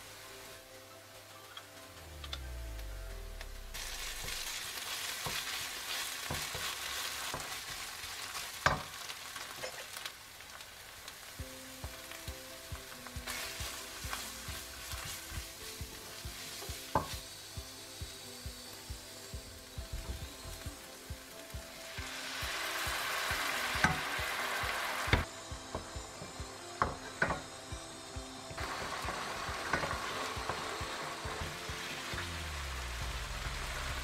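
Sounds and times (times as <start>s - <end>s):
onions sizzling in oil: 0.0s - 34.0s
utensil clicking on pan: 23.8s - 24.1s.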